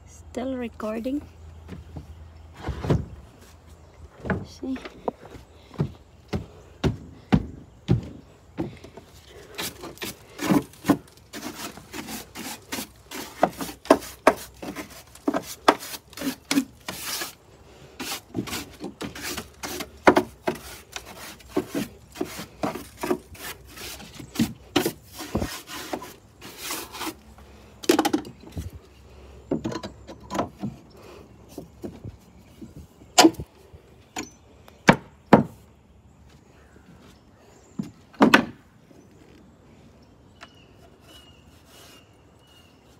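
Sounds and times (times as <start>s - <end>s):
scraping on wooden stairs: 1.6s - 17.4s, 18.0s - 27.2s.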